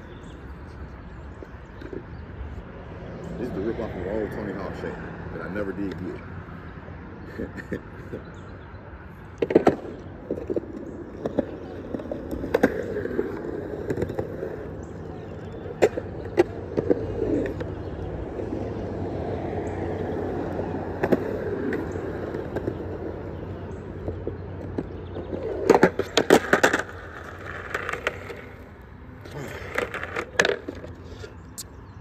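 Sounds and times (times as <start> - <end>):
skateboard wheels rolling on concrete: 0.0 - 32.0
skateboard clacks: 9.3 - 31.7.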